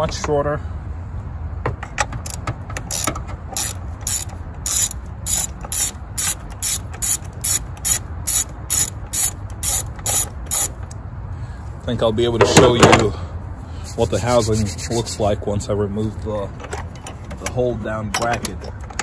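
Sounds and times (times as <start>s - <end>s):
ratchet clicking: 2.2s - 11.0s.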